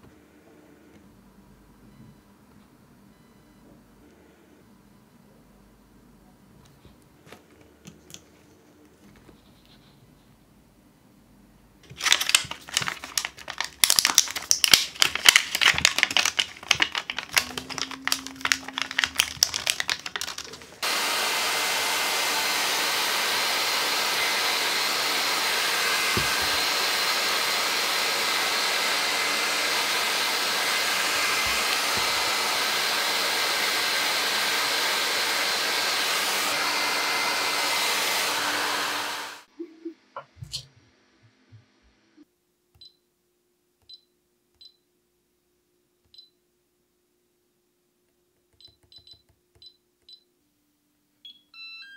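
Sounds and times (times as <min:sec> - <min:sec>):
plastic sleeve crinkling: 0:11.8 - 0:20.8
hair dryer running: 0:15.6 - 0:39.5.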